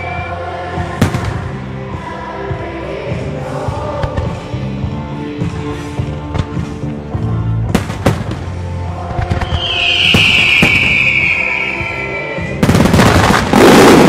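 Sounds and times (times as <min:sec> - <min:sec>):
background music: 0:00.0 - 0:14.0
fireworks crackling: 0:07.8 - 0:14.0
fireworks bangs: 0:09.1 - 0:14.0
high falling whistle tone: 0:09.4 - 0:12.6.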